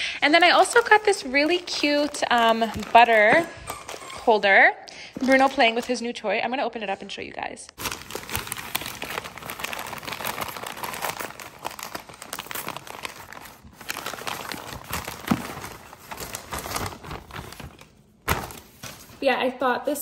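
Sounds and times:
paper crumpling: 0.1 - 4.3, 7.8 - 19.2.

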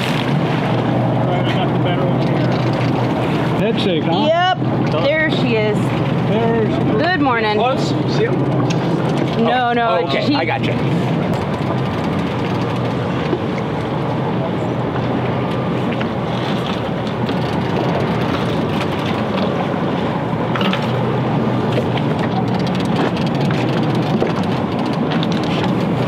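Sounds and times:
boat engine droning: 0.0 - 26.0
sea noise: 0.0 - 26.0
wind: 0.0 - 26.0.

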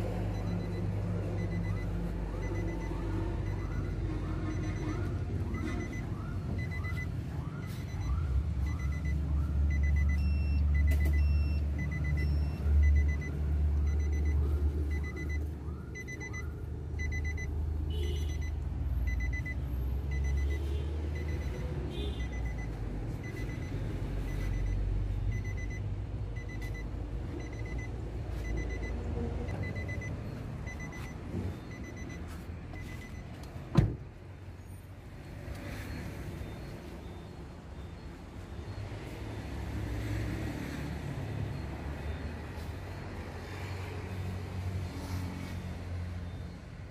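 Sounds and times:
car warning chime beeping: 0.1 - 33.7, 35.6 - 39.2
car door thump: 33.7 - 34.1.

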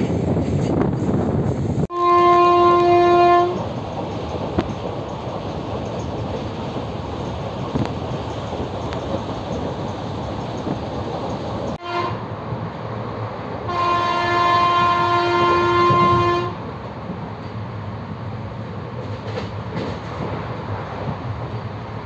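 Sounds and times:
train rumbling: 0.0 - 22.0
train horn: 1.9 - 3.6, 11.8 - 12.3, 13.7 - 16.6.

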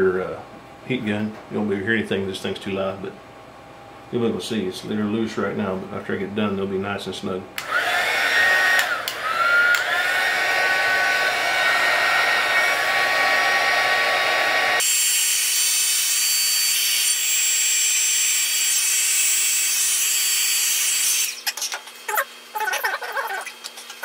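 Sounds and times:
heat gun blowing with fan whine: 7.6 - 15.4.

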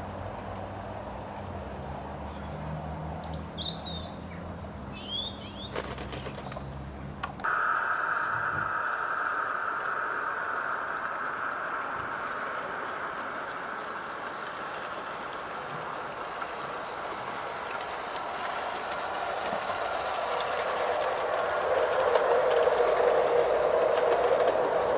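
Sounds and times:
model train wheels rumbling on rail: 5.7 - 24.9.

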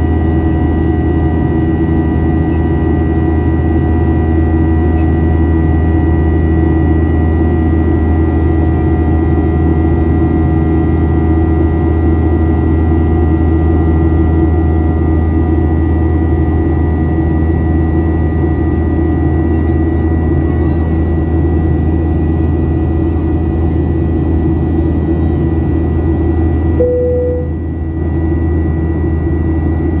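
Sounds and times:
jet engines droning in cabin: 0.0 - 30.0
short single tone: 26.8 - 27.7.

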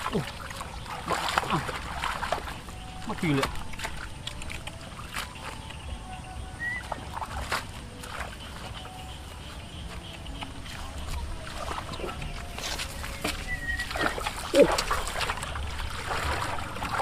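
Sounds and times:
small splashes in muddy water: 0.0 - 17.0.

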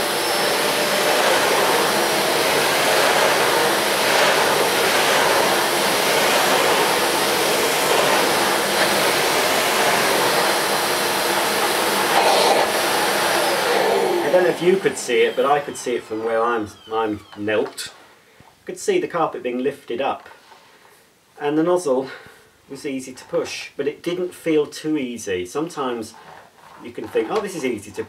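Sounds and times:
vacuum cleaner on carpet: 0.0 - 16.8.

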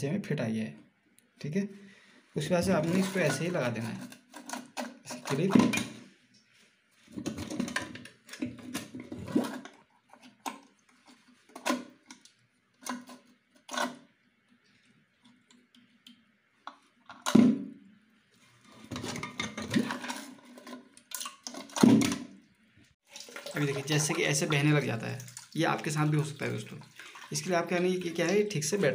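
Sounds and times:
plastic parts clicking and scraping: 2.7 - 6.0, 7.1 - 14.1, 18.6 - 22.3.

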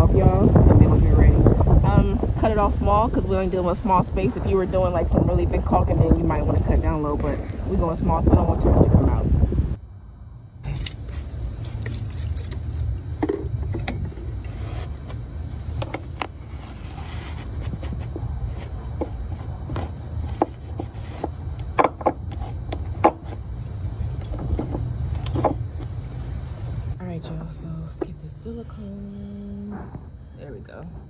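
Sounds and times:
low rumble: 0.0 - 21.8.

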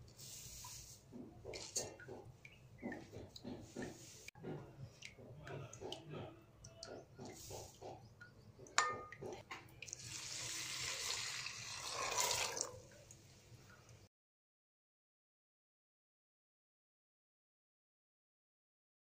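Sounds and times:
tap water pouring into steel bowl: 8.8 - 13.2.

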